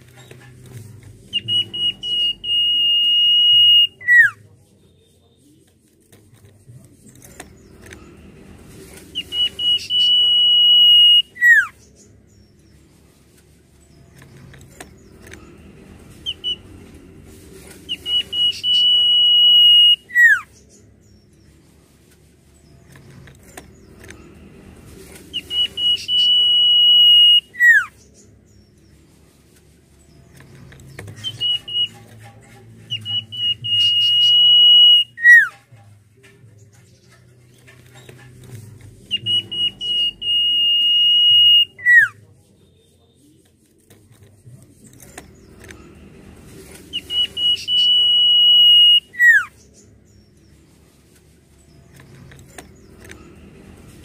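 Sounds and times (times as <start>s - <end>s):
bird whistling song: 1.2s - 4.4s, 9.2s - 12.4s, 16.2s - 16.7s, 17.9s - 21.2s, 25.3s - 28.2s, 31.0s - 32.2s, 32.8s - 35.6s, 39.0s - 42.2s, 46.9s - 50.2s.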